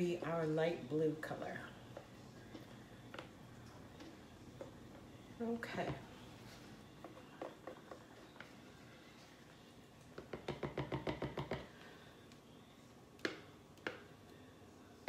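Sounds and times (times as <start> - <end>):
spatula tapping plastic cup: 7.0 - 8.5, 10.2 - 11.7, 13.2 - 14.1.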